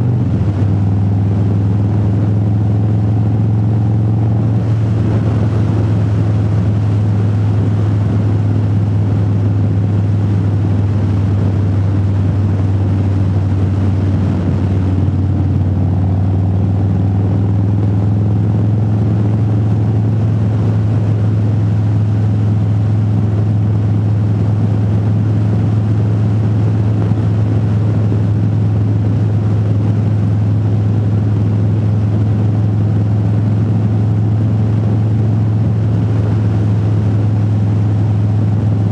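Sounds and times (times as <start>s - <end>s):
motorcycle engine droning: 0.0s - 38.9s.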